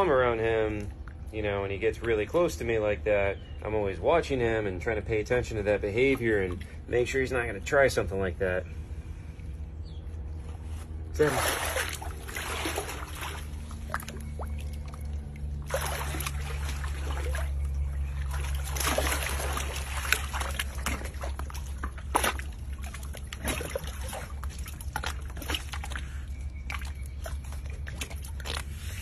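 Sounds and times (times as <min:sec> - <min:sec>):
low hum: 0:00.0 - 0:29.0
water sloshing and splashing: 0:00.0 - 0:29.0
water dripping: 0:11.4 - 0:28.7.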